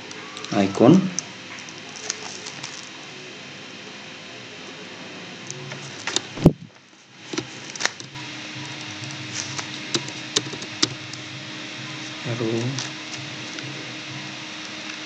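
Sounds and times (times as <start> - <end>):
low hum: 5.4 - 6.8.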